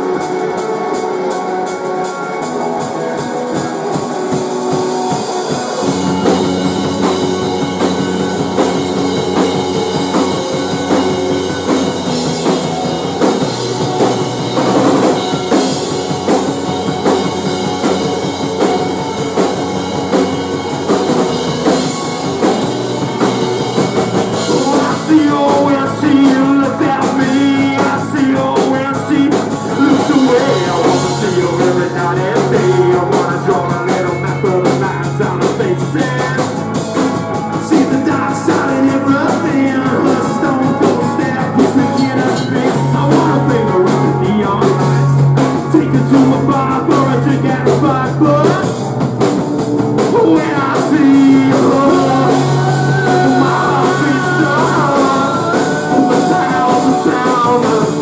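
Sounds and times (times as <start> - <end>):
bass guitar: 0.0 - 58.0
drum kit: 0.0 - 58.0
electric guitars: 0.0 - 58.0
man singing: 24.3 - 48.8, 50.0 - 58.0.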